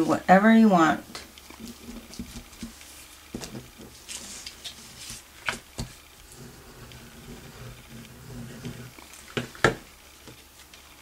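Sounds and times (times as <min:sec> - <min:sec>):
paper rustling: 0:01.6 - 0:07.8.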